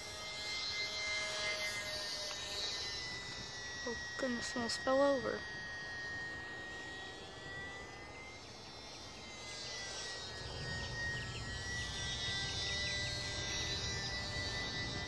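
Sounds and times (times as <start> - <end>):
model airplane motor whine: 0.0 - 15.0.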